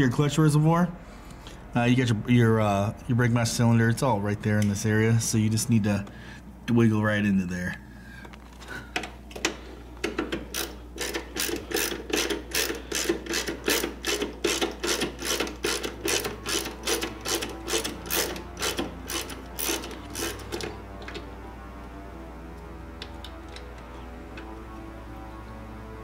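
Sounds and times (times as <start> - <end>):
socket ratchet clicking: 10.1 - 21.2.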